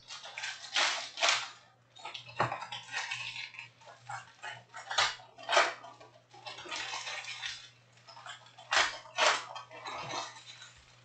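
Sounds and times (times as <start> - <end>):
foil wrappers crinkling and tearing: 0.0 - 5.8.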